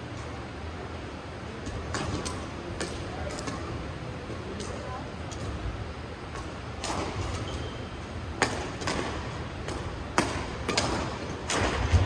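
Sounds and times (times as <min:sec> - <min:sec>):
low hall hum: 0:00.0 - 0:12.0
racket hitting shuttlecock: 0:06.3 - 0:07.7, 0:08.4 - 0:12.0.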